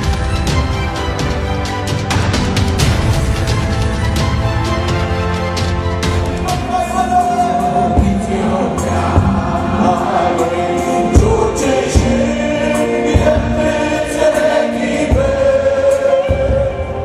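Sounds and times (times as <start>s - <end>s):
band playing: 0.0s - 17.0s
drum strikes: 0.0s - 17.0s
gospel choir singing: 6.2s - 17.0s.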